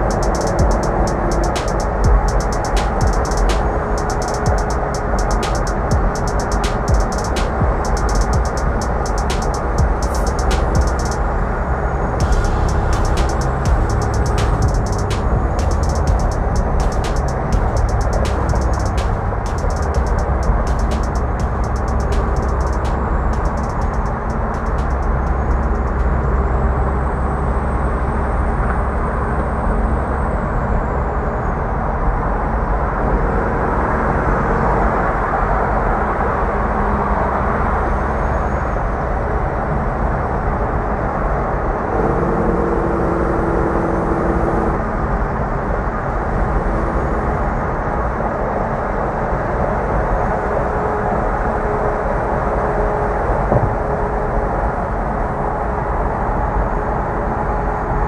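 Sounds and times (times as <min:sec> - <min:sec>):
truck diesel engine drone: 0:00.0 - 0:30.3
faint steady engine tones: 0:00.0 - 0:58.0.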